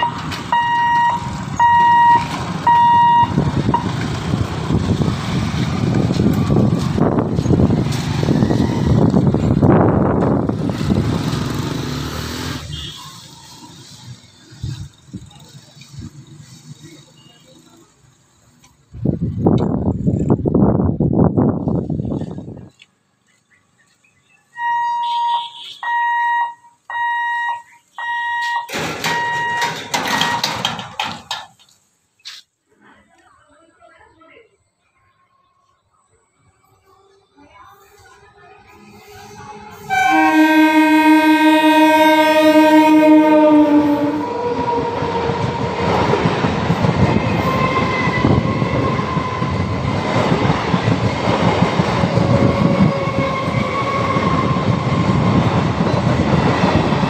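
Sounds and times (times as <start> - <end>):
crossing warning buzzer beeping: 0.0 - 3.9, 24.6 - 30.5
motorcycle and scooter engines: 0.0 - 20.4.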